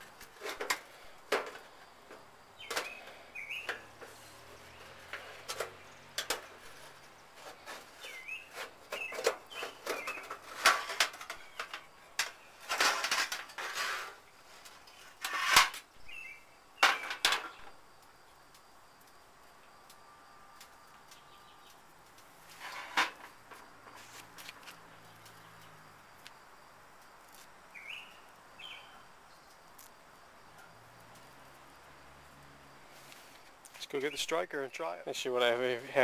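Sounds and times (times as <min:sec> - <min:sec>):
birds chirping: 0:02.5 - 0:06.1, 0:07.9 - 0:10.4, 0:16.0 - 0:17.7, 0:27.7 - 0:29.6.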